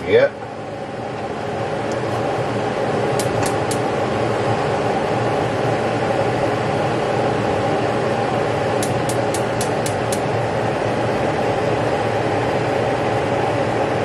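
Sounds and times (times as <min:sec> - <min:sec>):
spark igniter ticking: 0:03.2 - 0:03.9, 0:08.8 - 0:10.3.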